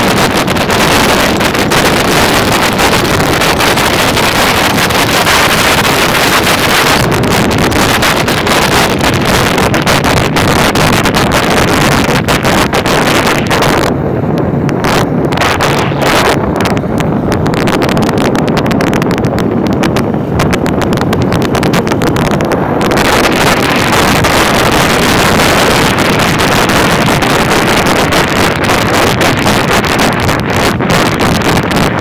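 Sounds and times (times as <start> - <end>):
vehicle engine running: 0.0 - 32.0
wind buffeting microphone: 0.0 - 32.0.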